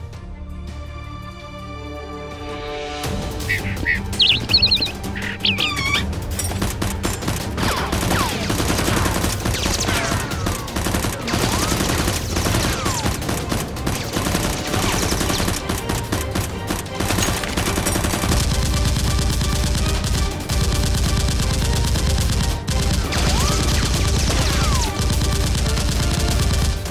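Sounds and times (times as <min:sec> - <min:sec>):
falling whistles: 0:03.4 - 0:06.0
rapid automatic gunfire effects: 0:04.2 - 0:26.9.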